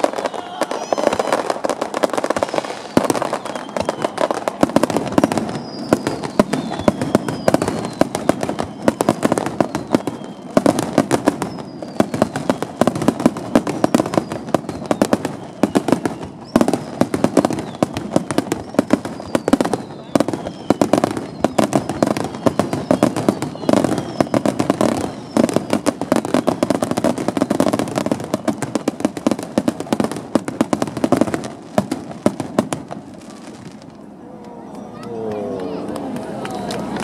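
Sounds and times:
firework whistles falling in pitch: 0:00.0 - 0:29.1
firework bangs and crackling: 0:00.0 - 0:34.1.

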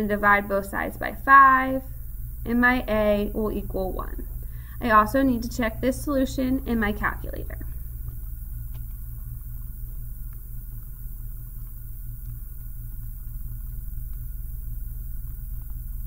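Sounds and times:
faint high steady tone: 0:00.0 - 0:07.9
low electrical hum: 0:00.0 - 0:16.0.

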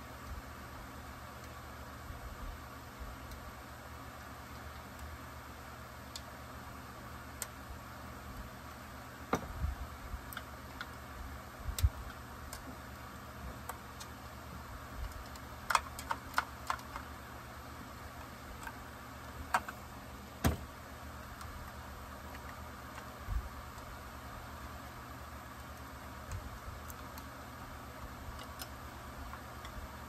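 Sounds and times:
clicks and taps of tools and parts: 0:19.5 - 0:19.8.

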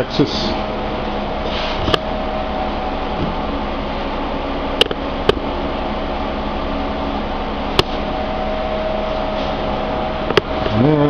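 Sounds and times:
air conditioner humming: 0:00.0 - 0:11.0.

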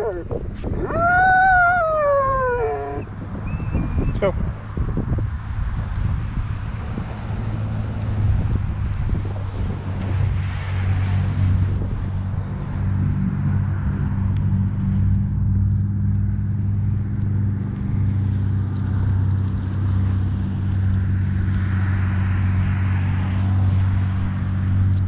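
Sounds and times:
vehicle engine running: 0:12.1 - 0:25.0.

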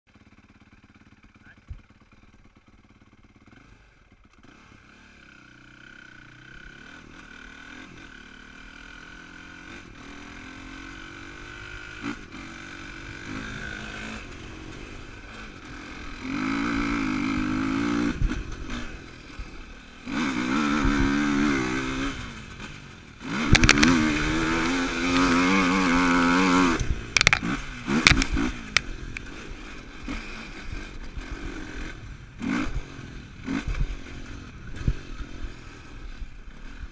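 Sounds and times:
quad engine revving: 0:00.2 - 0:36.9
knocks and rattles over bumps: 0:23.4 - 0:25.7, 0:26.8 - 0:28.9.

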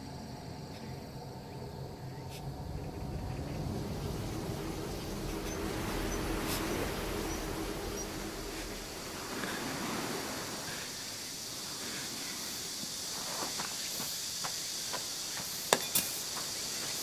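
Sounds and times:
low hum: 0:00.0 - 0:11.4
outdoor hiss: 0:00.0 - 0:17.0.

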